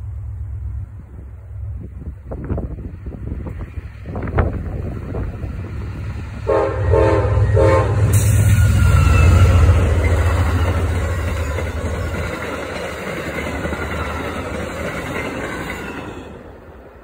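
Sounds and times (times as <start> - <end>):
heavy low rumble: 0.0 - 8.4
train rolling past on rails: 0.0 - 17.0.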